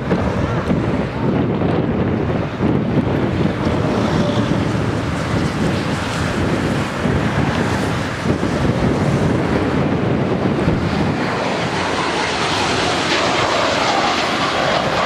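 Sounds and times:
jet engines roaring: 0:00.0 - 0:15.0
wind buffeting microphone: 0:00.0 - 0:15.0.

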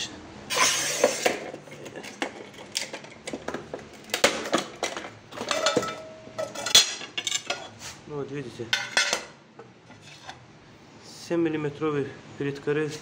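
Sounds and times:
tile cutter scraping: 0:00.5 - 0:01.6.

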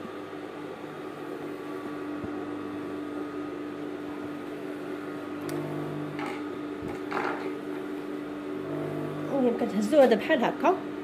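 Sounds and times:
sewing machine motor humming: 0:04.0 - 0:09.8.

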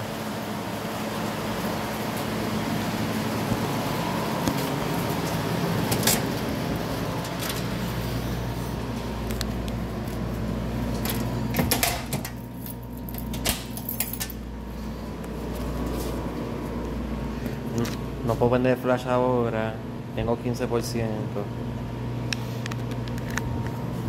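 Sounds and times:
steady hiss and low hum: 0:00.0 - 0:24.0
footsteps in sandals: 0:15.1 - 0:17.0.

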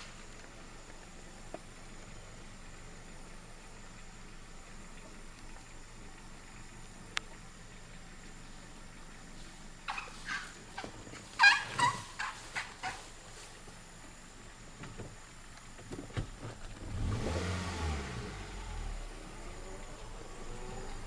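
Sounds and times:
high-pitched calls: 0:09.9 - 0:13.1
car engine revving: 0:16.5 - 0:21.0.

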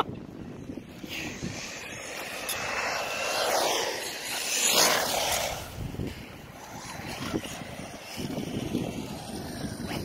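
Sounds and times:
motor whine and tyre rush: 0:00.0 - 0:10.0
radio-controlled cars racing past: 0:00.2 - 0:10.0.

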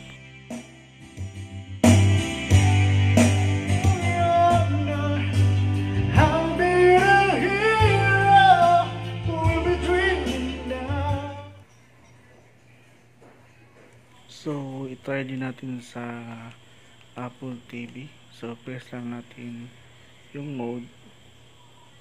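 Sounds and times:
karaoke song over loudspeakers: 0:01.8 - 0:11.7.

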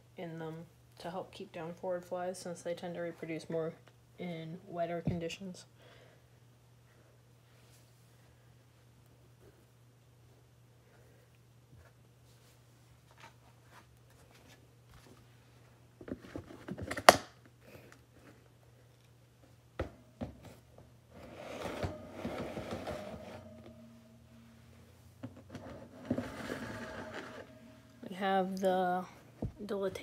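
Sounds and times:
plastic tub scraping: 0:21.2 - 0:24.4, 0:25.2 - 0:28.5.

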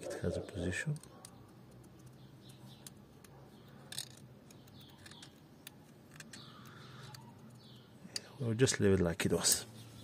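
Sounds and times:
faint bird chirps: 0:00.0 - 0:08.4
metal pick clicking and scraping: 0:00.9 - 0:08.3.

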